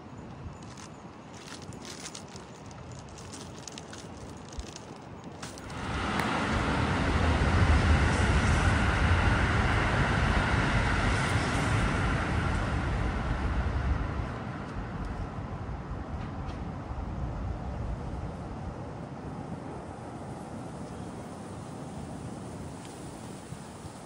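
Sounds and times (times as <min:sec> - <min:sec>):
vehicle passing by: 0:05.6 - 0:15.1.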